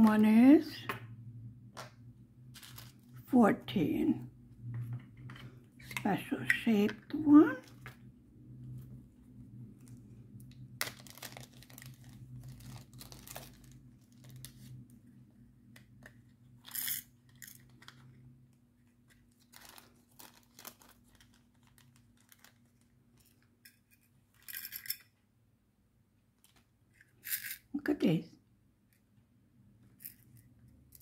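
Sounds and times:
plastic bags crinkling: 2.5s - 3.2s, 10.8s - 14.8s, 19.3s - 23.4s.

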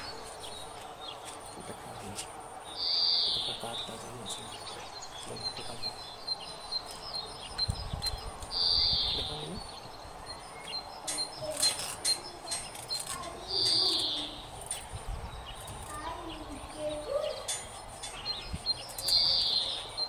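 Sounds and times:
bird high call: 0.0s - 20.0s
birds chirping: 0.0s - 20.0s
sharp clicks: 10.3s - 14.9s, 17.5s - 19.6s.

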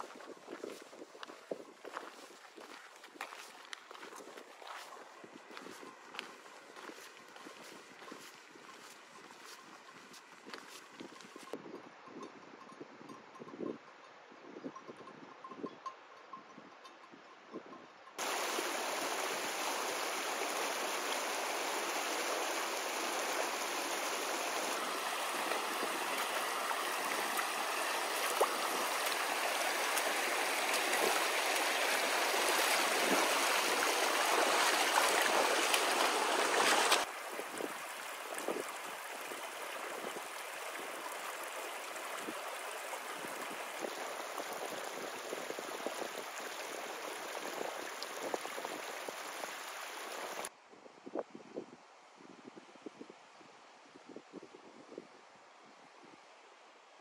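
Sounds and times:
stream rushing over stones: 0.0s - 11.5s, 18.2s - 50.5s.

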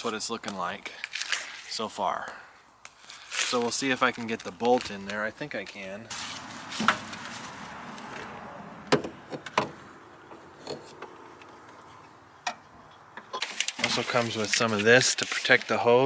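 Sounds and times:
faint rustling hiss: 10.3s - 16.0s.

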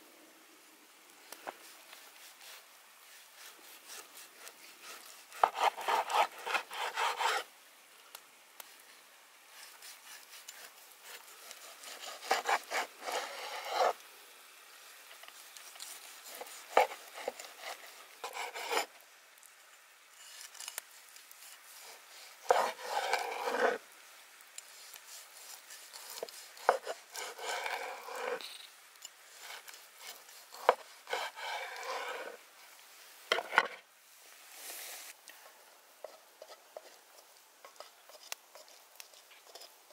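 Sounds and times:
knife rasping through steak crust: 1.6s - 7.5s, 9.5s - 14.0s, 15.3s - 18.9s, 20.3s - 23.8s, 24.6s - 28.4s, 29.3s - 32.4s, 36.0s - 39.9s.

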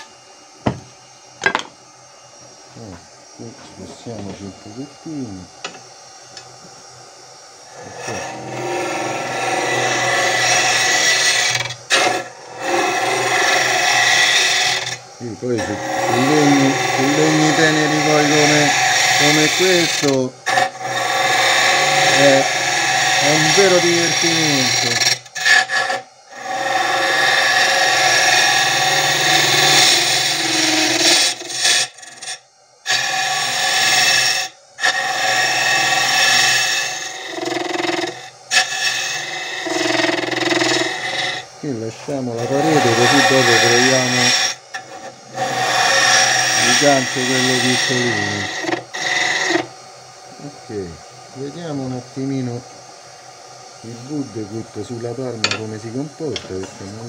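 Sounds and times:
tool scraping wood: 0.0s - 1.7s, 2.4s - 6.8s, 7.7s - 49.7s, 53.9s - 57.0s
wood lathe running: 0.0s - 57.0s
sharp knock: 0.6s - 0.9s.

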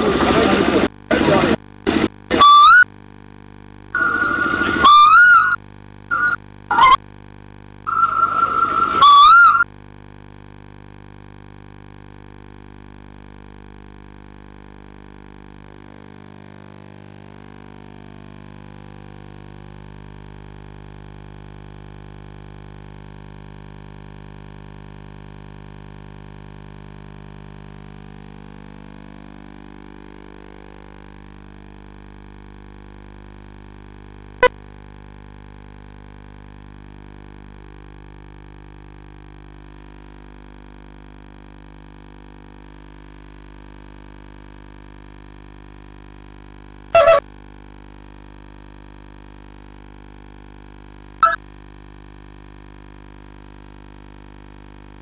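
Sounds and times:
electrical mains hum: 0.0s - 55.0s
warbling whistle-like tone: 2.4s - 2.9s, 4.0s - 7.0s, 7.9s - 9.7s.

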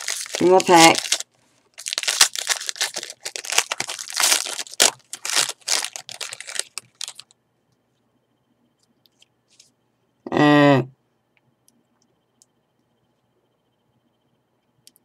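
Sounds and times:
foil wrapper crinkling: 0.0s - 7.3s.

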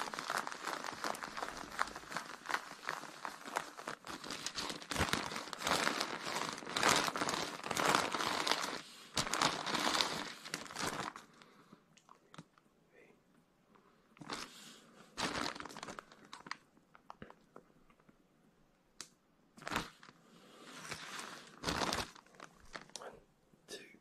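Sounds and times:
baking paper crinkling: 0.0s - 11.5s, 14.2s - 17.4s, 19.6s - 23.0s.

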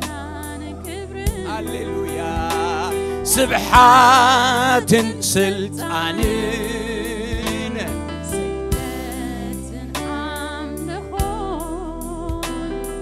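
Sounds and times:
bass: 0.0s - 13.0s
person singing with vibrato: 0.5s - 8.0s, 8.8s - 10.0s
band playing: 1.4s - 9.6s.

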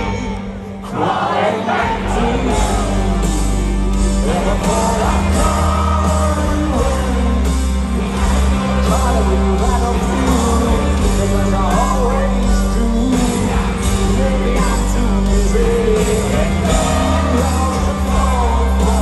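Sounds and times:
person singing: 0.0s - 19.0s
rock band playing live: 0.0s - 19.0s
bass line: 1.8s - 19.0s
drum beat: 2.1s - 19.0s.

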